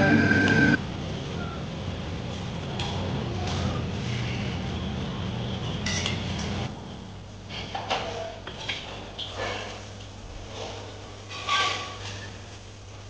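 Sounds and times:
steady low hum: 0.0s - 1.0s.

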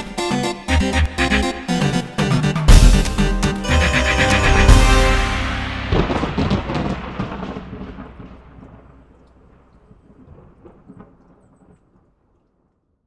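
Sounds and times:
thunder crack and rumble: 5.6s - 12.7s.

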